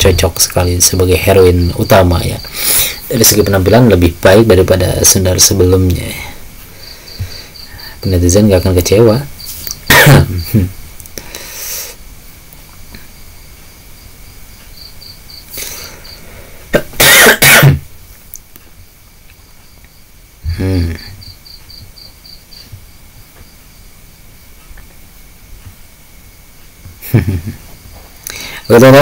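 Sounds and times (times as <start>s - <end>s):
man coughing: 9.9s - 10.6s, 16.7s - 17.8s.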